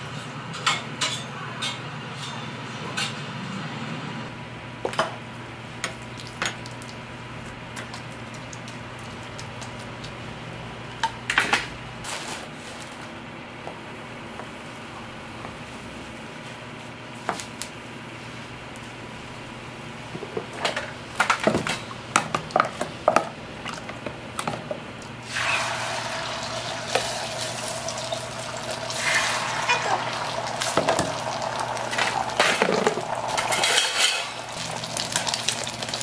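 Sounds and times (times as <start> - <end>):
metal utensils clinking on griddle: 33.4 - 34.4.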